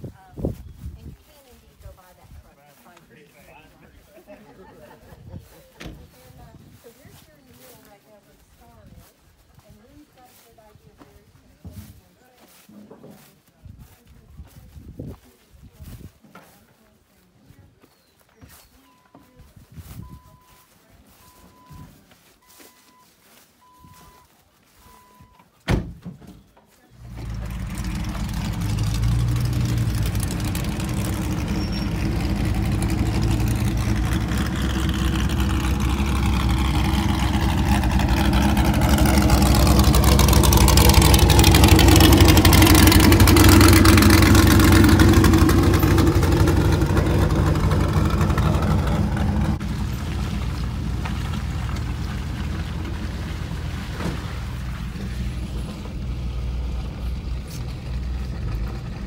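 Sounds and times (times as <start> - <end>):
vehicle warning chime beeping: 20.0 - 25.5
car engine starting and running: 27.0 - 59.0.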